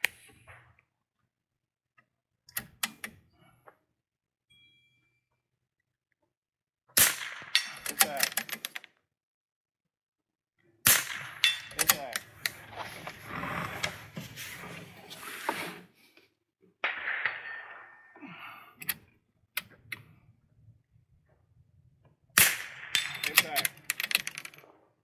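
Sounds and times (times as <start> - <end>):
rifle shots: 7.0 - 8.2, 10.8 - 12.8, 16.8 - 18.1, 22.4 - 23.8
low voices: 11.7 - 15.6.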